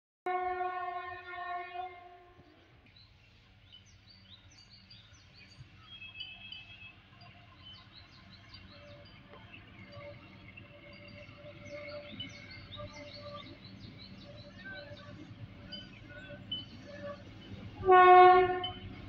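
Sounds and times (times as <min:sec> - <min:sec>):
locomotive horn blast: 0:00.3 - 0:02.3, 0:17.8 - 0:18.9
distant locomotive rumble: 0:00.3 - 0:19.0.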